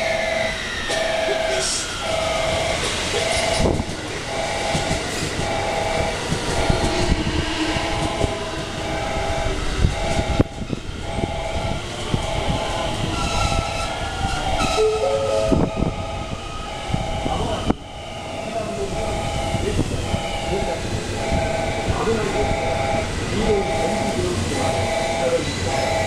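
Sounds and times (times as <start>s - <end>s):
train wheels knocking on rail joints: 2.2s - 14.8s
two-note electronic signal: 3.3s - 26.0s.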